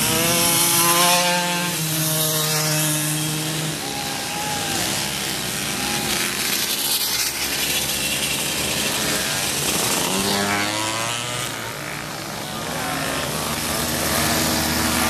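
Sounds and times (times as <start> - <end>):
moped engines buzzing: 0.0 - 15.0.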